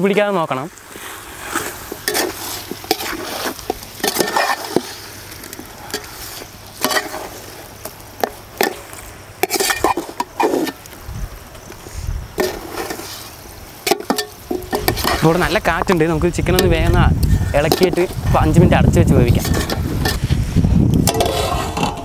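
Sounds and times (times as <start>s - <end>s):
chicken sizzling in oil: 0.7s - 21.2s
metal ladle scraping a pot: 1.4s - 5.1s, 5.9s - 7.4s, 9.4s - 10.8s, 12.4s - 15.4s, 16.6s - 18.3s, 19.3s - 20.4s, 21.0s - 22.0s.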